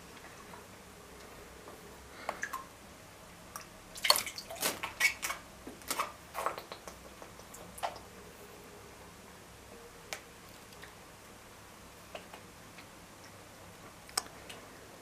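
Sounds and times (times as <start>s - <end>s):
water dripping in aquarium: 2.2s - 2.8s, 3.5s - 5.4s, 6.4s - 8.1s, 10.1s - 11.0s.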